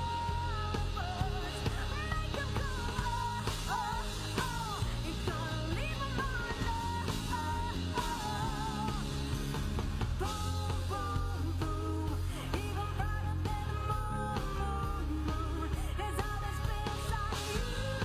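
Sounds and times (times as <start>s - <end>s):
rock band playing: 0.0s - 18.0s
woman singing: 0.0s - 18.0s.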